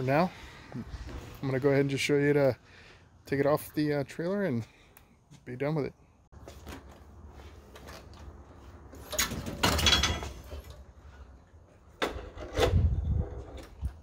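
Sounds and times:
scraping and rattling of tow dolly: 0:07.5 - 0:14.0.

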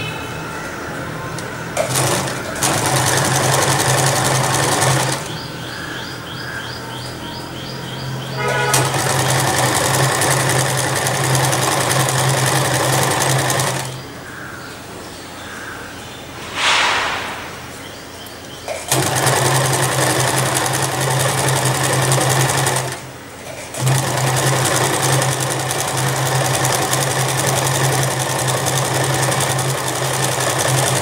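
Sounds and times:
sewing machine stitching: 0:01.8 - 0:05.3, 0:08.5 - 0:14.0, 0:18.9 - 0:31.0.

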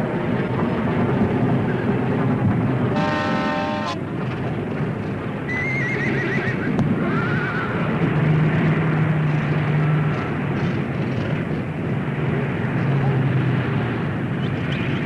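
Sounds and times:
steady noisy rumble: 0:00.0 - 0:15.0
horse whinnying: 0:05.5 - 0:07.7.

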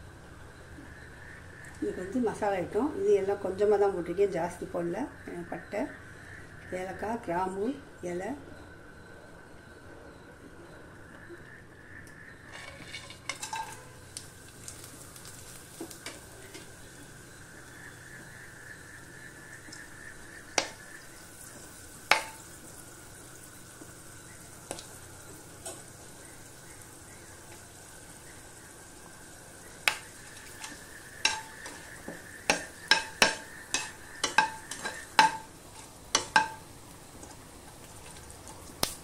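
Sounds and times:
spices sizzling in oil: 0:11.9 - 0:39.0
spices popping and crackling: 0:12.0 - 0:39.0.

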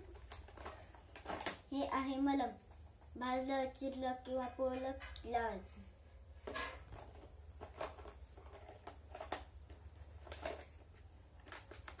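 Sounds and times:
plastic packaging rustling: 0:00.0 - 0:02.0, 0:06.3 - 0:12.0.

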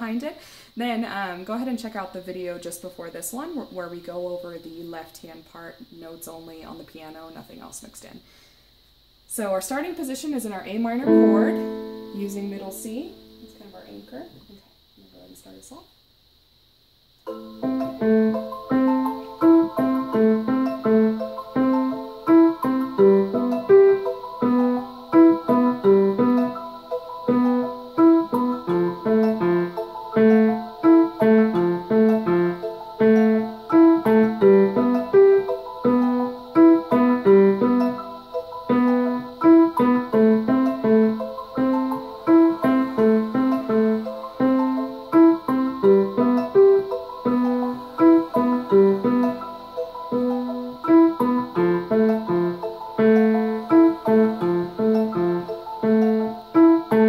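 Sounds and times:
recorded piano piece: 0:10.0 - 0:14.5, 0:17.2 - 0:57.0
digital piano accompaniment: 0:10.9 - 0:14.2, 0:17.2 - 0:57.0.

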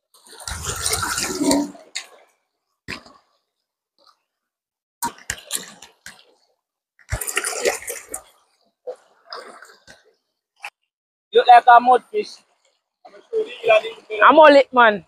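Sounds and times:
water splashing: 0:00.1 - 0:03.4, 0:05.0 - 0:10.8.

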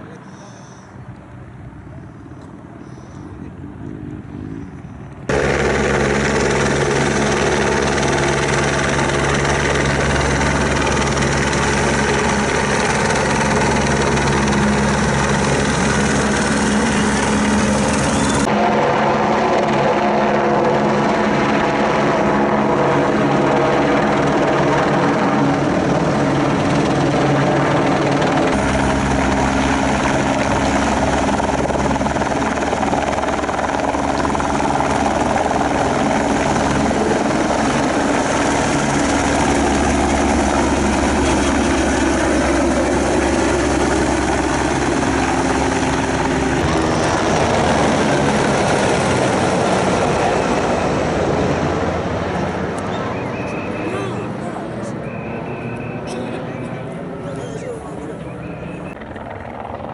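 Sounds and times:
helicopter rotor and engine drone: 0:00.0 - 0:59.9.

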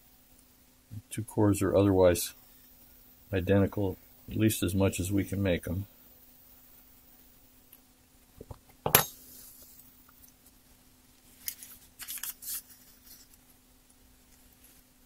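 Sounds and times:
faint steady hum: 0:00.0 - 0:15.0
sharp clack on workbench: 0:08.9 - 0:09.2
tissue paper rustling: 0:11.2 - 0:13.5.

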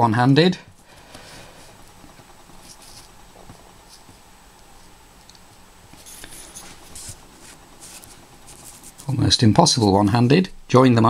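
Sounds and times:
pencil scratching on paper: 0:02.6 - 0:03.1, 0:06.0 - 0:09.2.

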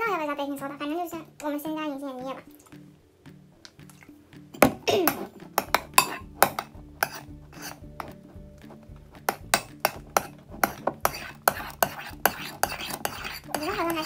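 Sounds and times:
spoon scraping ceramic bowl: 0:04.8 - 0:14.0.

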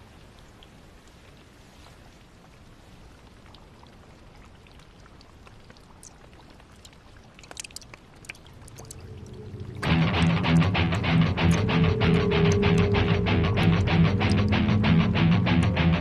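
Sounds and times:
steady rain hiss: 0:00.0 - 0:04.4, 0:08.4 - 0:16.0
drips and splashes: 0:00.0 - 0:12.9.

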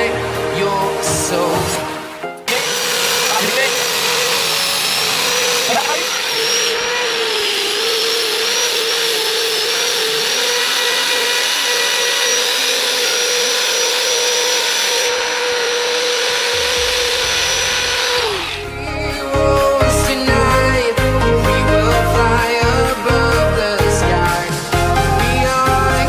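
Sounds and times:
music: 0:00.0 - 0:02.6, 0:03.2 - 0:03.7, 0:16.5 - 0:26.0
angle grinder motor whine: 0:02.5 - 0:20.5.

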